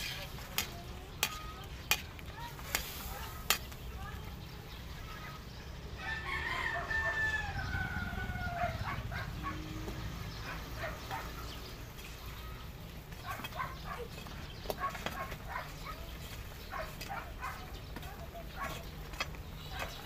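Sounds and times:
rooster crowing: 0:06.0 - 0:09.7.

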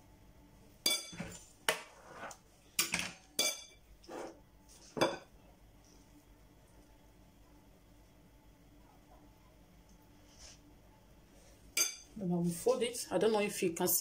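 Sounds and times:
metal spoon clinking ceramic bowl: 0:02.8 - 0:03.8.

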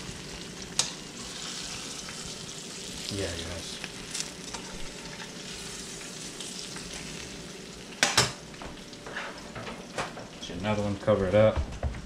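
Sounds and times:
fish frying in hot oil: 0:00.0 - 0:11.0.

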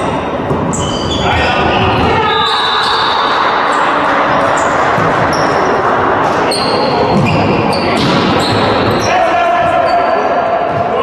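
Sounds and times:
shoes squeaking on wooden floor: 0:00.7 - 0:03.2, 0:06.5 - 0:09.1.

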